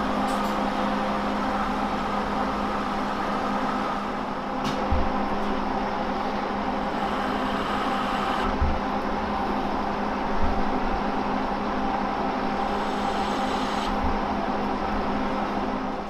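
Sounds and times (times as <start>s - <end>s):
lathe cutting metal: 6.8s - 8.5s, 12.6s - 14.0s.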